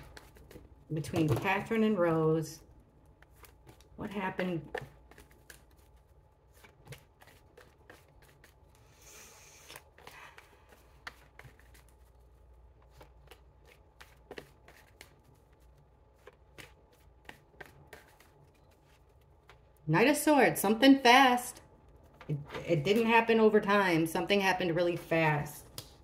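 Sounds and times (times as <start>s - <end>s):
cards being shuffled: 3.0s - 19.8s.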